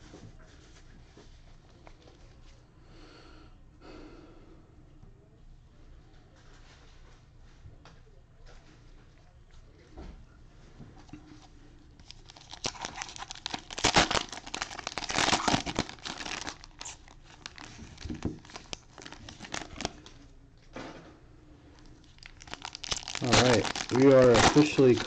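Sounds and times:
cellophane wrappers crinkling and tearing: 12.0s - 20.2s, 21.8s - 25.0s.

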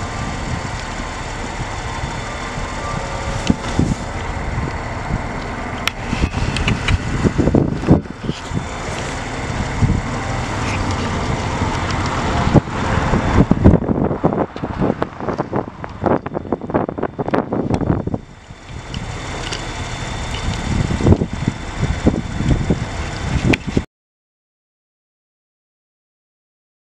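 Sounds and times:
steady outdoor rumble: 0.0s - 23.9s
wind buffeting microphone: 0.0s - 23.9s.

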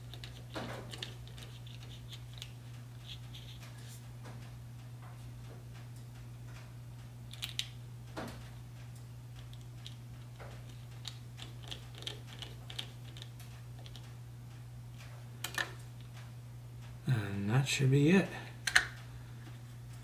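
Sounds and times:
small screwdriver turning screw: 0.0s - 3.6s
low steady hum: 0.0s - 20.0s.

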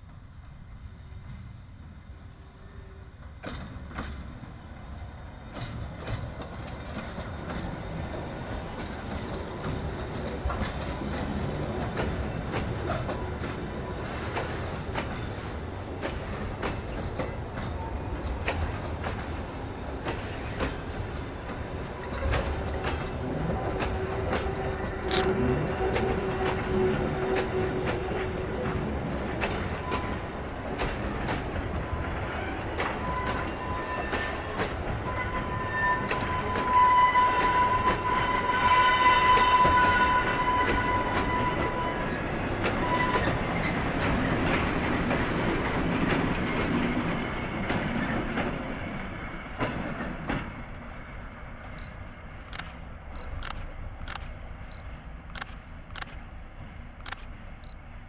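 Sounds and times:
diesel locomotive engine: 0.0s - 58.0s
train wagons rolling: 2.6s - 58.0s
high wheel squeal: 31.7s - 45.0s
sharp clicks: 52.5s - 56.2s, 57.0s - 57.3s.

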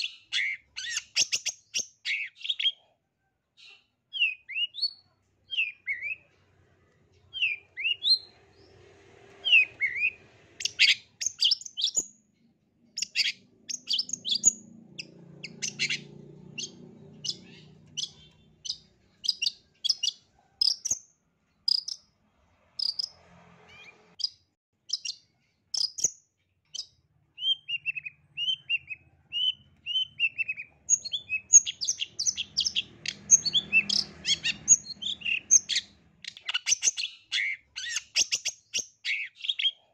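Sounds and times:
bird singing chattering song: 0.0s - 2.8s, 3.6s - 6.3s, 7.2s - 12.3s, 12.9s - 22.1s, 22.8s - 39.9s
down-slurred bird whistles: 0.0s - 2.8s, 4.1s - 6.2s, 7.3s - 8.3s, 9.4s - 12.1s, 13.0s - 14.6s, 26.8s - 39.8s.

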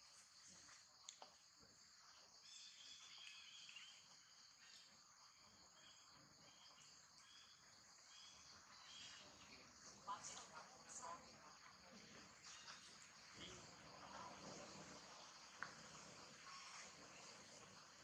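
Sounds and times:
insect chirp: 0.0s - 18.0s
high-pitched insect drone: 11.0s - 18.0s.

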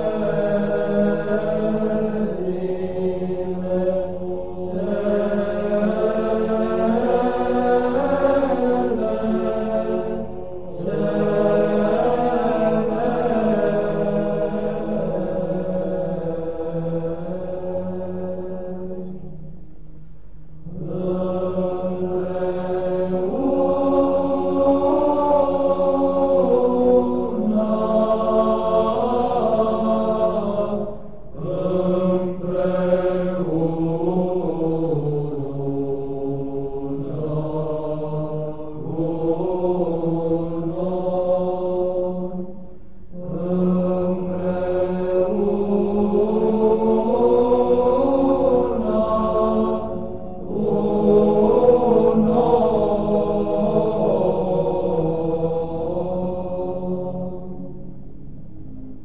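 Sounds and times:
chanted vocal music: 0.0s - 59.0s
low drone: 0.0s - 59.0s.

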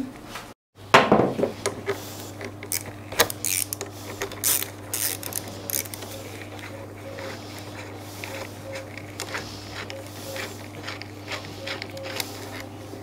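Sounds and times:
steady low hum: 0.8s - 13.0s
hand tool clicking and scraping: 1.6s - 12.8s
gloved hands rustling: 1.8s - 13.0s.

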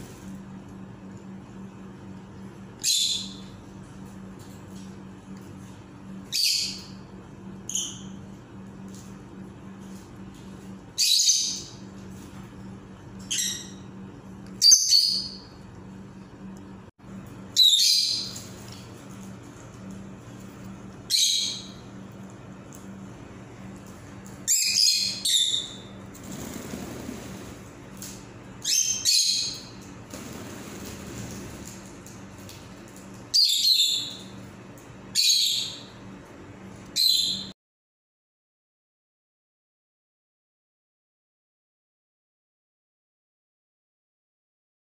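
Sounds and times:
steady low hum: 0.0s - 37.6s
parrots chirping: 17.6s - 18.4s, 21.1s - 21.8s, 24.5s - 25.9s.

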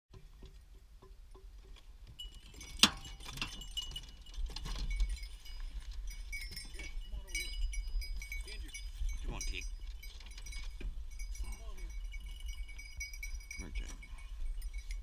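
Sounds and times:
metallic jingling and rattling: 1.0s - 15.0s.

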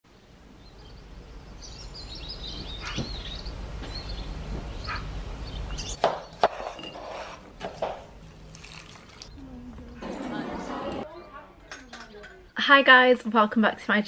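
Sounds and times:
birds chirping: 0.1s - 7.4s, 8.1s - 12.8s.

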